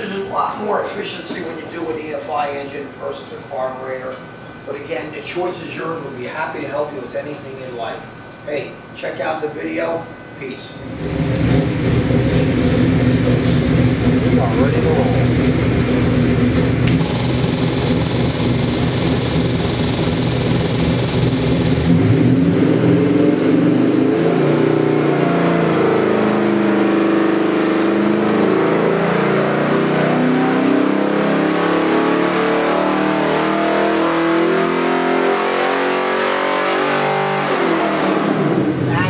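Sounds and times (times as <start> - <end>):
engine revving under load: 10.8 - 38.9.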